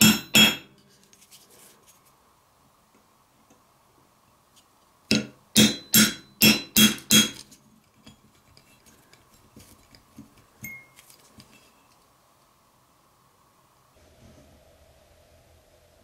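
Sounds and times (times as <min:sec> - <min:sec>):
hammer striking metal punch: 0:00.0 - 0:00.7, 0:05.1 - 0:07.4.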